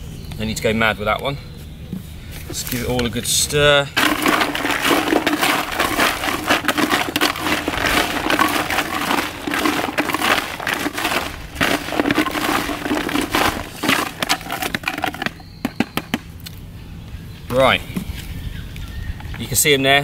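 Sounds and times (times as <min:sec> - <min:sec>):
hard baits rattling in container: 0:04.0 - 0:15.9.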